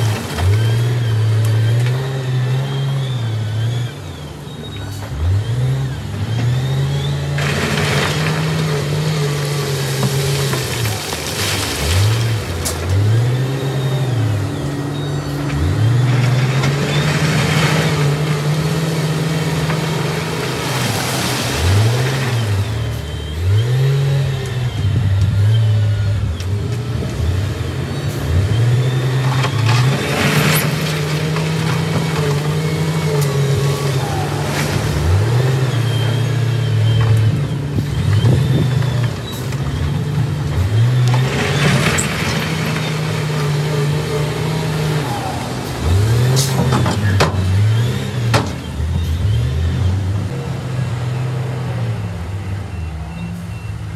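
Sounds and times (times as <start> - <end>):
diesel engine revving: 0.0 - 53.9
rock crunching and rattling: 7.4 - 13.1.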